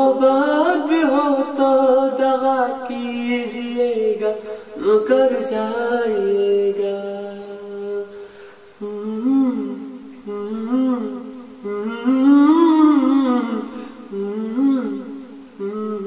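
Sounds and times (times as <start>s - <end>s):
man humming: 8.8s - 16.0s.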